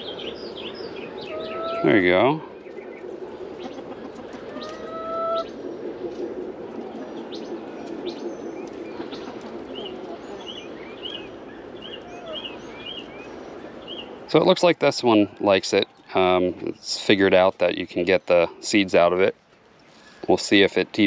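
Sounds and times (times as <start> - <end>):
chicken rising call: 1.0 - 2.5, 3.5 - 5.6, 8.8 - 11.2, 11.8 - 12.8
chickens clucking: 1.2 - 2.4, 3.0 - 13.8
small bird chirping: 7.0 - 14.3.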